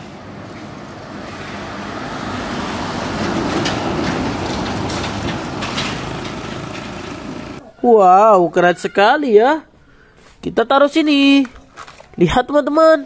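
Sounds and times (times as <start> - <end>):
tanker truck driving past: 0.0 - 7.6.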